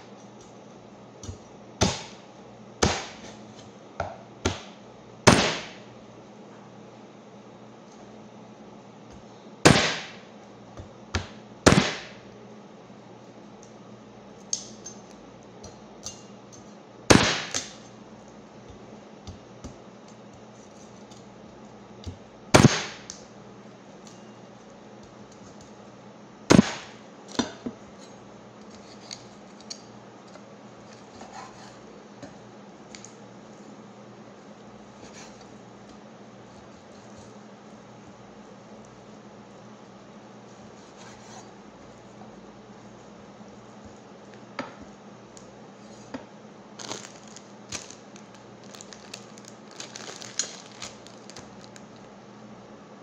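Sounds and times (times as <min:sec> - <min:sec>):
cleaver chopping on wooden board: 0:02.8 - 0:03.2.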